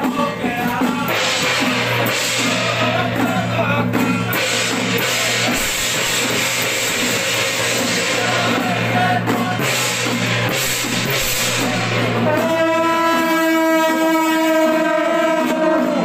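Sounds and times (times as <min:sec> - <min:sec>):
chanting voice: 0:00.0 - 0:16.0
gongs cymbals and drum clashing: 0:00.0 - 0:16.0
long horn note: 0:11.2 - 0:16.0.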